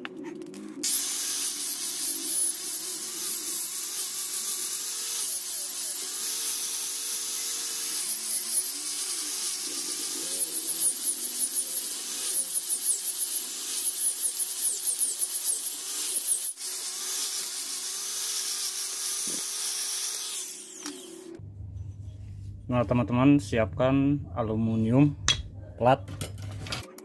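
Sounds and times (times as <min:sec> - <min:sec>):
angle grinder sanding wood: 0:00.8 - 0:21.4.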